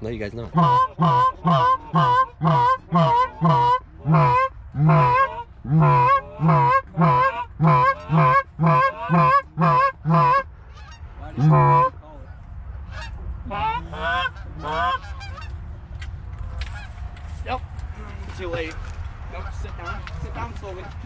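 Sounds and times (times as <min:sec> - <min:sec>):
goose call honking: 0:00.4 - 0:12.0, 0:12.8 - 0:15.6.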